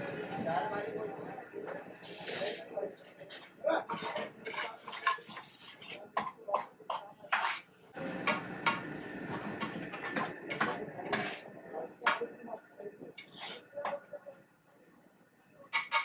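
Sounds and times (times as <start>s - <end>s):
metal ladle scraping a wok: 3.9s - 6.0s, 13.2s - 13.7s.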